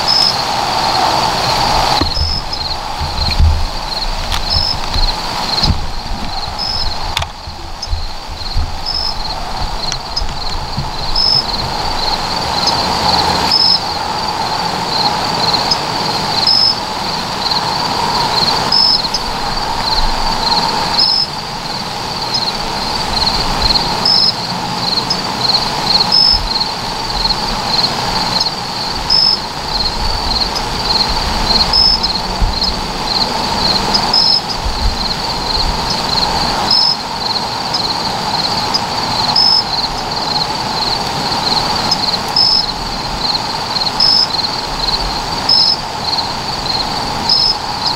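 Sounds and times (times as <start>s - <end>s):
low uneven rumble: 0.0s - 16.0s
crickets trilling: 0.0s - 47.9s
sharp insect chirp: 0.0s - 47.9s.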